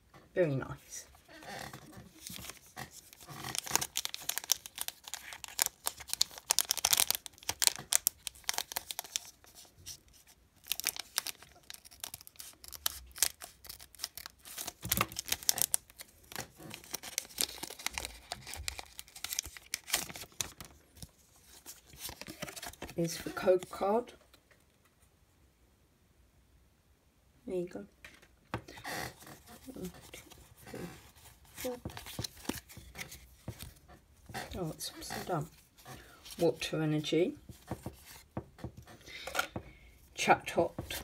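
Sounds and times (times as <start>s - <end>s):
cards being handled: 1.7s - 23.9s, 28.2s - 39.7s, 40.6s - 41.0s
foil wrapper crinkling: 1.9s - 23.8s.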